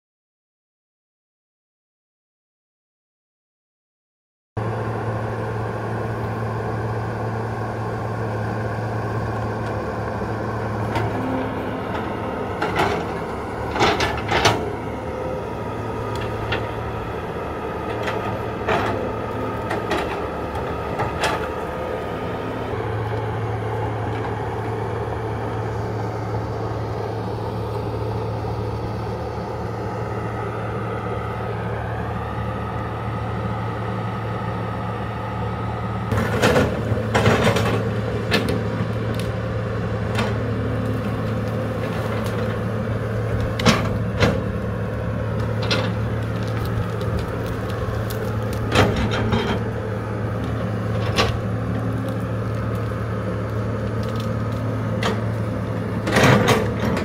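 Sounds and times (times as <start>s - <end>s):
excavator diesel engine running: 4.6s - 57.0s
rising whine: 5.2s - 36.2s.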